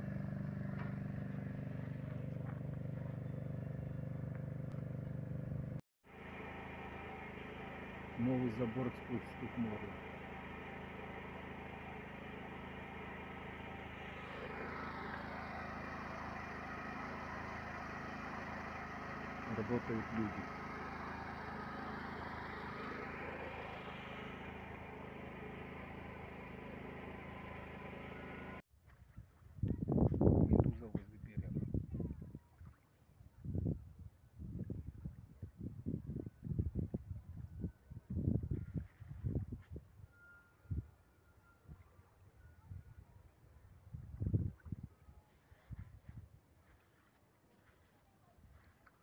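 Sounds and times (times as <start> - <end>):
diesel machinery engine hum: 0.0 - 28.6
portable generator running: 0.0 - 28.6.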